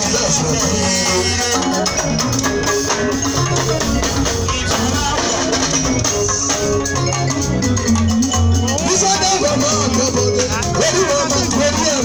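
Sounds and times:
bass guitar line: 0.0 - 12.0
live band through speakers: 0.0 - 12.0.

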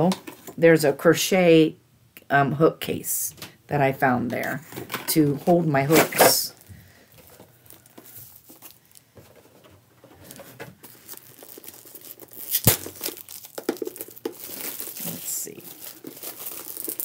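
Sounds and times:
plastic packaging crinkling: 5.9 - 17.0.

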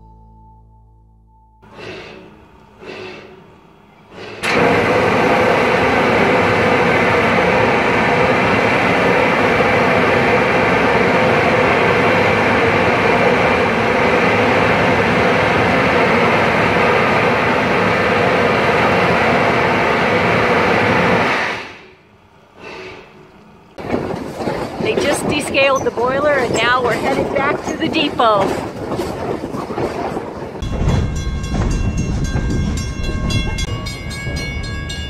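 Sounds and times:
steam hissing from locomotive: 1.7 - 3.5, 4.1 - 21.9.

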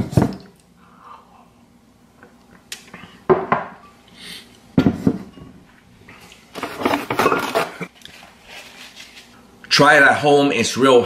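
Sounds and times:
dishes knocking on counter: 3.3 - 3.8, 4.8 - 5.5
dishes clattering: 6.6 - 7.9.

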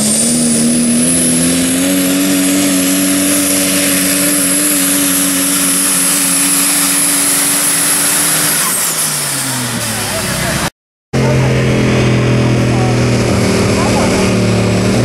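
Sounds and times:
diesel truck engine at full power: 0.0 - 15.0.

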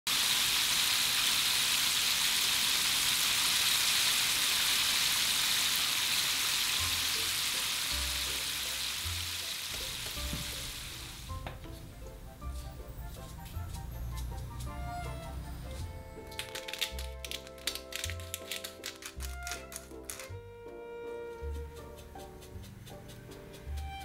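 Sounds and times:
chicken deep-frying in oil: 0.1 - 11.5.

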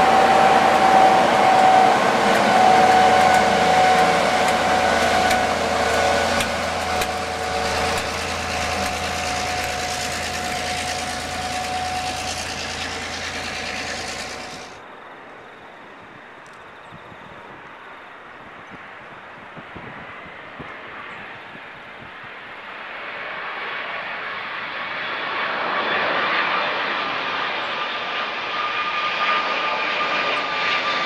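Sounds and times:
diesel engine high whine: 0.0 - 14.9
moving train noise: 0.0 - 22.8.

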